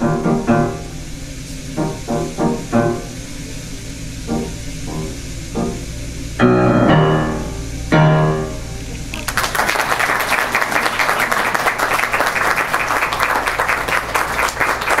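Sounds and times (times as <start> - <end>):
piano chord: 0.0 - 15.0
audience applause: 9.1 - 15.0.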